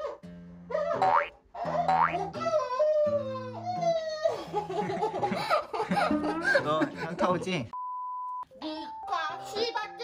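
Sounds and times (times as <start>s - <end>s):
background music with low notes: 8.4s - 10.0s.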